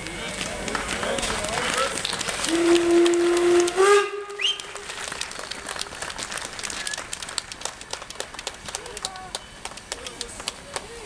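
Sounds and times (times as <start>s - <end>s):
steam whistle blast: 2.5s - 4.8s.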